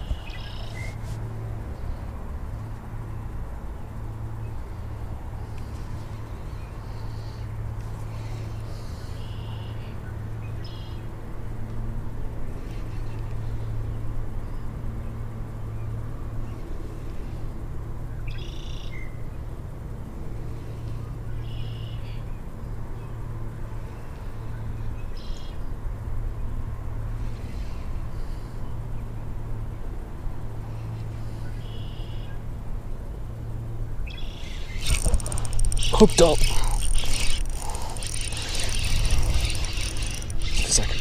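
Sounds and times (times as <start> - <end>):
steady low hum: 32.3 - 41.0.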